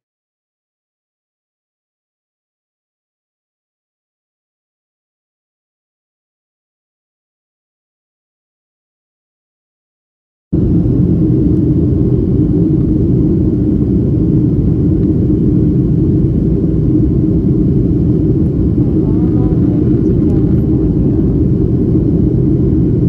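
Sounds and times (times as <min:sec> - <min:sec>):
airliner cabin rumble: 0:10.6 - 0:23.0.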